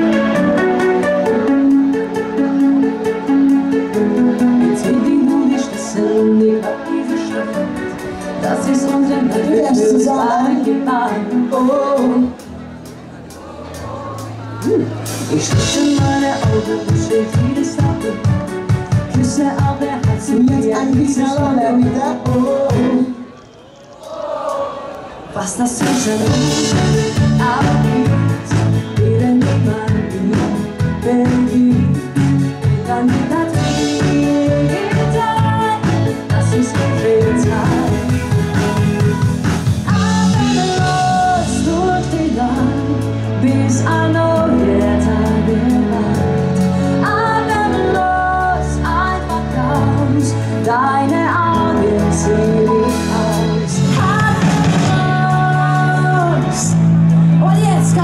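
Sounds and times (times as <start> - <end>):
keyboard: 0.0 - 58.0
woman singing into a microphone: 3.8 - 12.5, 13.7 - 23.4, 25.3 - 38.5, 39.8 - 58.0
steady drum beat: 25.8 - 41.1
electric guitar: 25.8 - 58.0
electric bass: 26.0 - 58.0.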